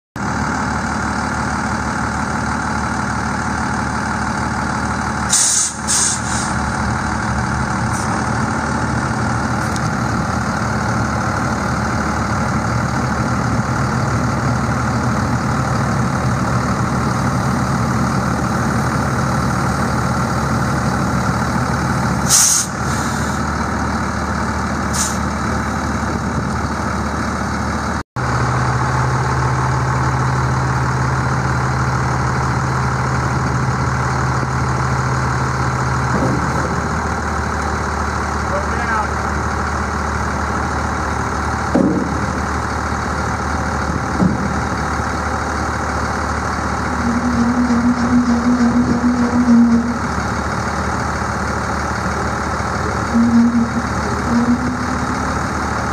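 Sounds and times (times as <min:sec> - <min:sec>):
diesel truck idling: 0:00.2 - 0:55.9
air brake hiss: 0:05.3 - 0:06.6, 0:22.2 - 0:23.4, 0:24.9 - 0:25.3.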